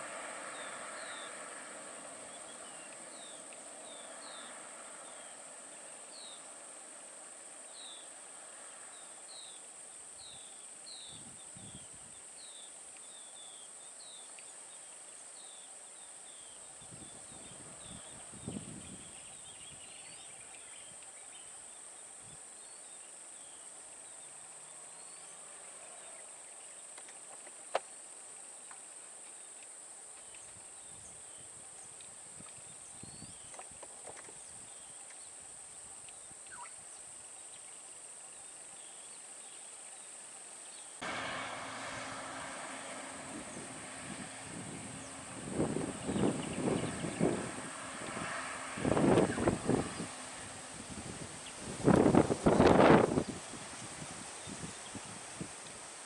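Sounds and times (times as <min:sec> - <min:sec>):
bird chirping: 0:00.5 - 0:06.6, 0:36.0 - 0:41.0, 0:43.3 - 0:53.6.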